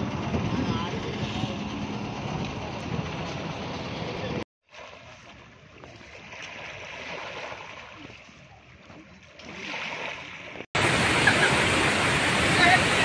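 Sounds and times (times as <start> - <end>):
river water rushing: 9.5 - 13.0.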